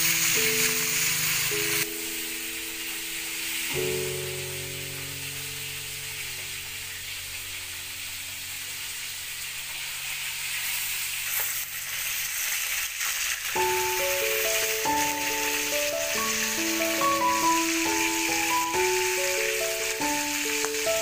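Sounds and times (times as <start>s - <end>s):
soft background music: 0.0s - 10.0s, 13.6s - 21.0s
fish frying in oil: 0.0s - 21.0s
utensils scraping wok: 9.5s - 19.8s.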